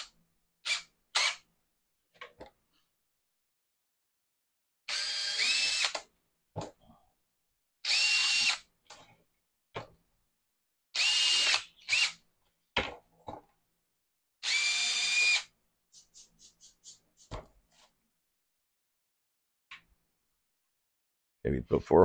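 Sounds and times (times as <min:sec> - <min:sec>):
power drill whining: 0:04.9 - 0:06.0, 0:07.8 - 0:08.6, 0:11.0 - 0:12.2, 0:14.4 - 0:15.5.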